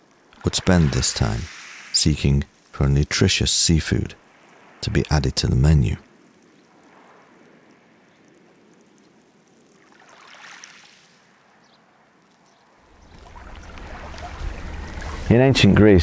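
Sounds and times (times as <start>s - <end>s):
waves lapping on pebbles: 0.0s - 2.8s, 9.7s - 12.1s, 12.9s - 15.4s.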